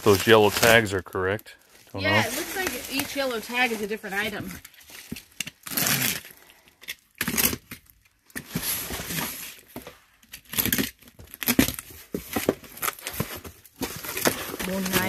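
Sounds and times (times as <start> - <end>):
knife slitting packing tape: 5.4 - 9.5, 10.4 - 11.9.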